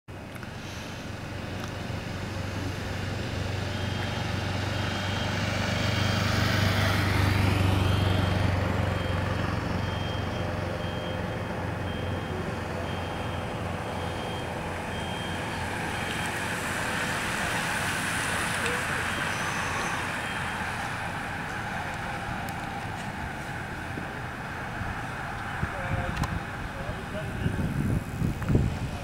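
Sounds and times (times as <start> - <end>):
motorcycle passing by: 1.8 - 29.0
high beeping: 3.6 - 5.4, 7.8 - 16.5, 18.7 - 21.0.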